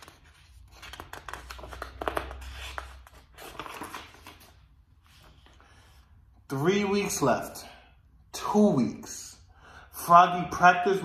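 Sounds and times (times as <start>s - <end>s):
paper rustling and crackling: 0.0s - 5.5s.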